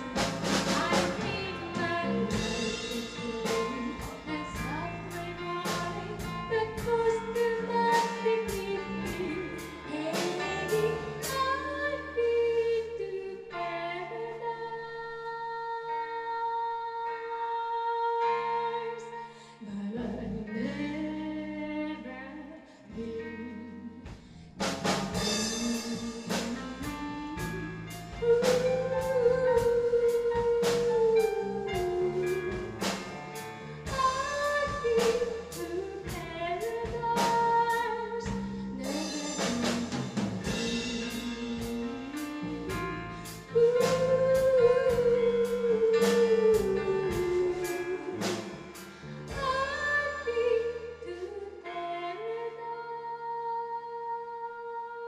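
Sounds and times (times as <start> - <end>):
drum kit: 0.0 - 12.4, 24.1 - 50.8
electric bass: 0.0 - 14.7, 19.8 - 52.1
woman singing: 0.0 - 24.1, 25.2 - 55.0.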